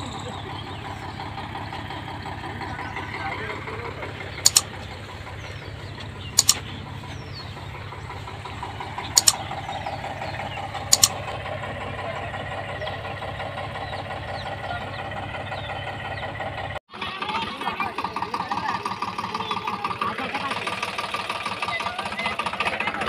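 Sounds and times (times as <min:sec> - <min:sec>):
tractor engines running: 0:00.0 - 0:23.0
mouse click sound effect: 0:04.4 - 0:04.7, 0:06.4 - 0:06.6, 0:09.2 - 0:09.4, 0:10.9 - 0:11.1.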